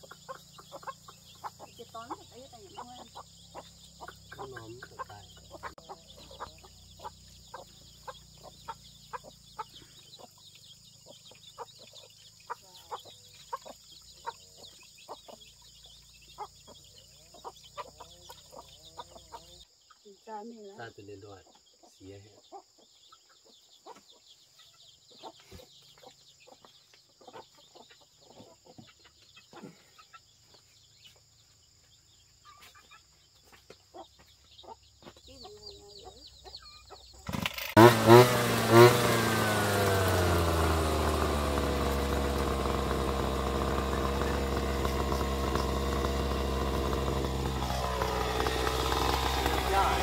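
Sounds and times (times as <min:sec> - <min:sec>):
brush cutter engine revving: 0:00.0 - 0:19.6, 0:37.2 - 0:50.0
hens clucking: 0:00.0 - 0:20.4, 0:21.4 - 0:30.6
faint insect drone: 0:00.0 - 0:38.2
engine bangs: 0:37.2 - 0:50.0.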